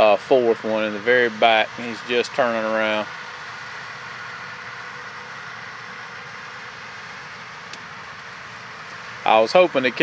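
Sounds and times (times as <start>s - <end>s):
distant farm machinery drone: 0.0s - 10.0s.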